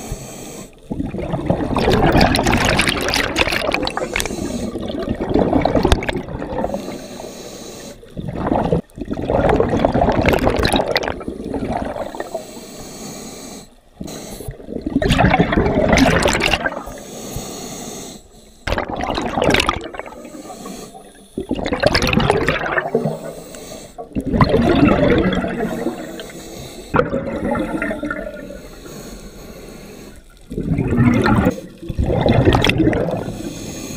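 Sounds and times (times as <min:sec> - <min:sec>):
diver breathing through regulator: 0:00.0 - 0:00.9, 0:03.8 - 0:05.3, 0:05.9 - 0:08.2, 0:11.1 - 0:14.7, 0:16.6 - 0:19.0, 0:19.6 - 0:24.2, 0:25.2 - 0:31.8, 0:33.0 - 0:33.9
exhaust bubbles gushing: 0:00.9 - 0:06.8, 0:08.1 - 0:12.3, 0:14.5 - 0:17.0, 0:18.7 - 0:20.4, 0:21.4 - 0:23.2, 0:24.0 - 0:26.2, 0:26.9 - 0:28.6, 0:30.5 - 0:33.3.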